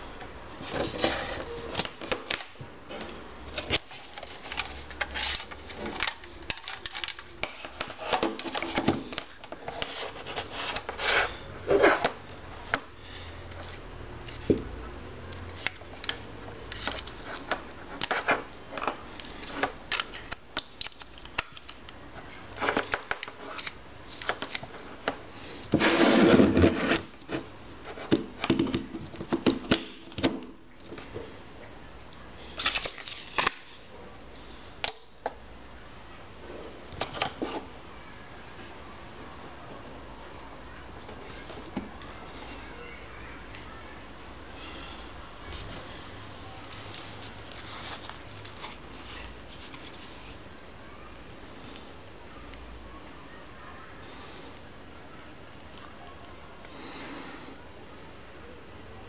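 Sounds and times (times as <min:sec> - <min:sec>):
plastic power strip handling: 0:00.6 - 0:12.8
loud scrape on desk: 0:25.7 - 0:27.1.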